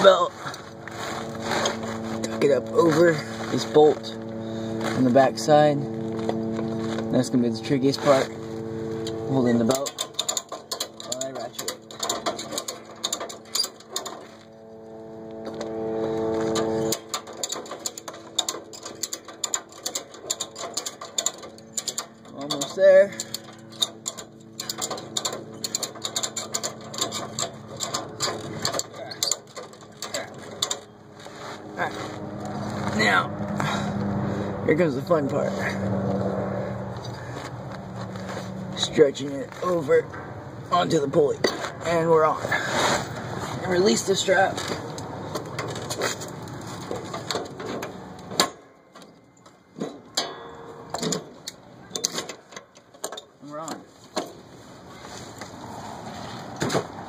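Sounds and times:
ratchet strap clicking: 9.0 - 14.3, 16.8 - 30.9.

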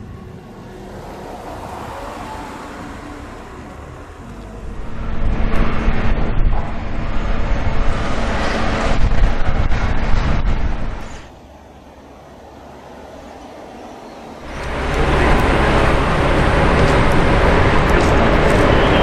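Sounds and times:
road traffic: 0.0 - 19.0
wind rumbling on microphone: 2.9 - 11.5, 14.4 - 19.0.

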